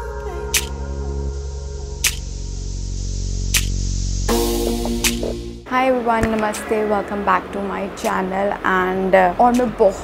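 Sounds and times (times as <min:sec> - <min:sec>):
intro music with deep bass: 0:00.0 - 0:05.7
short sharp hit: 0:04.3 - 0:07.1.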